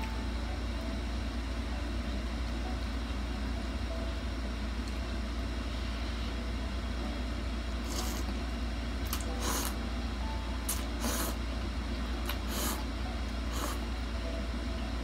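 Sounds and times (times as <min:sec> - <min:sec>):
air conditioner humming: 0:00.0 - 0:15.0
slurping noodles: 0:07.8 - 0:08.3, 0:09.1 - 0:09.8, 0:10.7 - 0:11.4, 0:12.3 - 0:12.8, 0:13.5 - 0:13.8.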